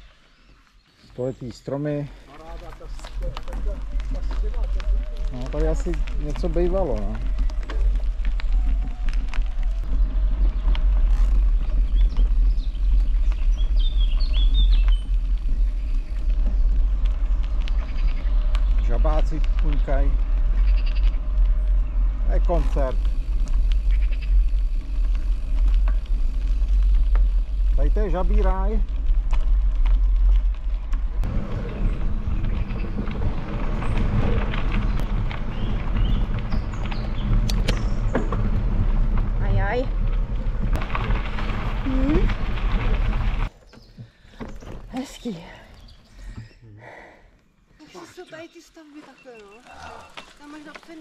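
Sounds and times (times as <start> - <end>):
small bird chirping: 11.4 - 16.9, 47.8 - 51.0
wind on microphone: 28.9 - 43.5.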